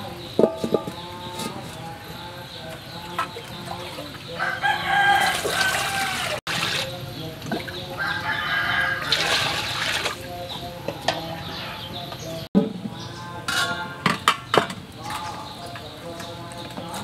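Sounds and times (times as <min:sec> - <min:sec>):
rooster crowing: 0:04.3 - 0:06.4, 0:08.0 - 0:09.6
water poured into metal pot: 0:09.0 - 0:10.2.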